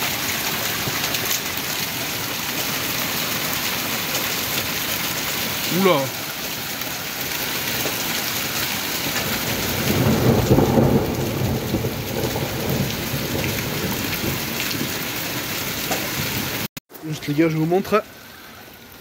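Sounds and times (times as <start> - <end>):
rain and hail falling: 0.0 - 19.0
thunder rumble: 9.0 - 16.6.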